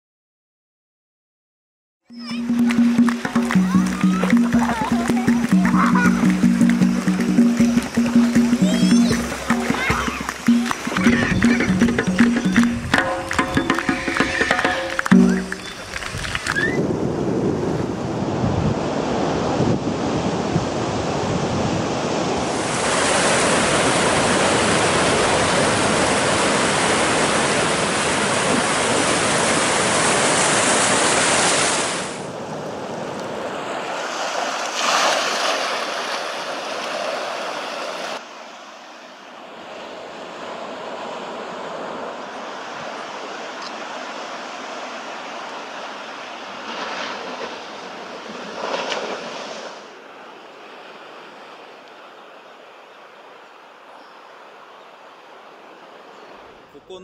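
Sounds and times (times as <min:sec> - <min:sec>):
ocean surf breaking: 0:02.1 - 0:52.8
wind on microphone: 0:06.9 - 0:31.0.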